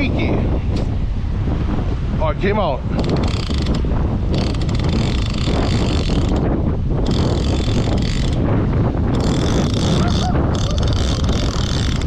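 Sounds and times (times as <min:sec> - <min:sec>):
wind noise on microphone: 0:00.0 - 0:12.0
fishing reel whirring: 0:03.0 - 0:08.4, 0:09.1 - 0:12.0.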